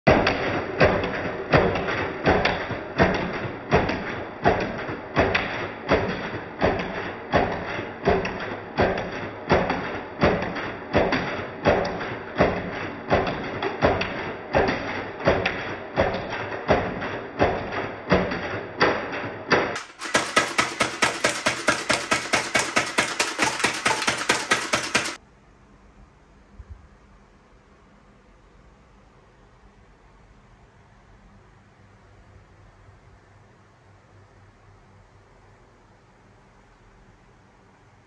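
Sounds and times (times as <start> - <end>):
music with percussive beat: 19.8 - 25.2.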